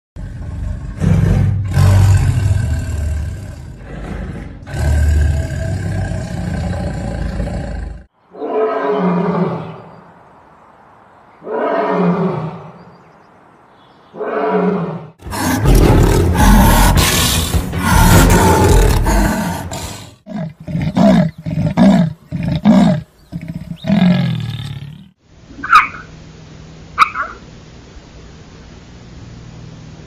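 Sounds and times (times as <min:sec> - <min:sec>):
leopard growling: 0:00.2 - 0:08.1, 0:14.8 - 0:25.1
leopard snarling and roaring: 0:00.2 - 0:09.8, 0:14.2 - 0:25.2.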